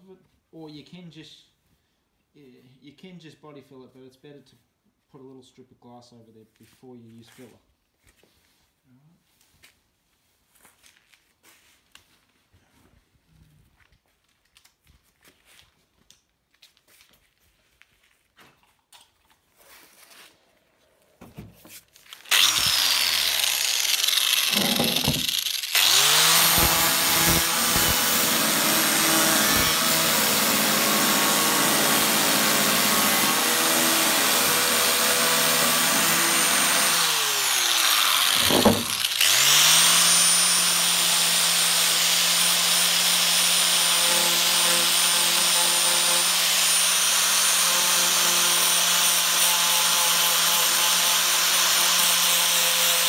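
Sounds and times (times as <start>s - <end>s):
angle grinder grinding fibreglass: 22.0s - 53.0s.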